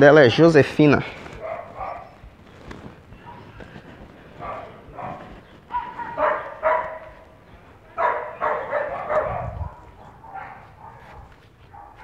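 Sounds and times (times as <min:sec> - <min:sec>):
dog barking: 0:01.4 - 0:02.2, 0:03.2 - 0:03.6, 0:04.4 - 0:12.0.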